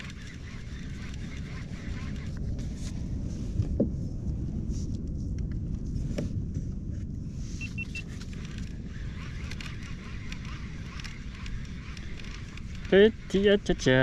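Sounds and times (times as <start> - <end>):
wind buffeting microphone: 0.0 - 14.0
short high beeps: 7.6 - 8.1.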